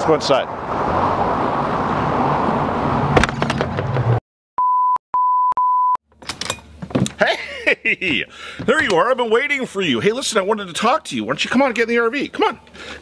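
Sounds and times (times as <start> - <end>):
traffic rumble: 0.0 - 4.2, 6.1 - 13.0
short electronic beeps: 4.6 - 6.0.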